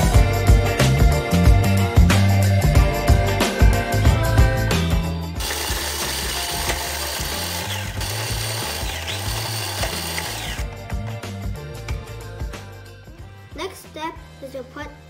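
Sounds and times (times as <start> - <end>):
food processor grinding: 5.4 - 11.1.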